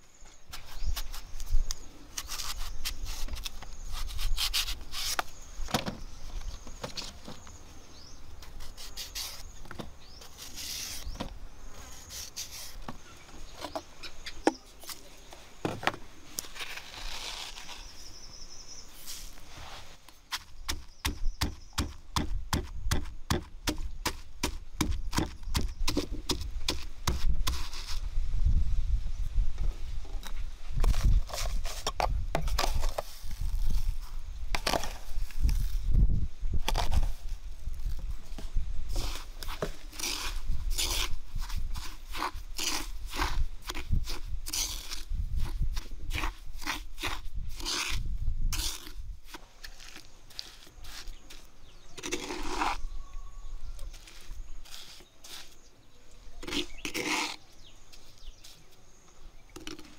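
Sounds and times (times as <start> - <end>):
pestle pounding in stone mortar: 20.7 - 27.3.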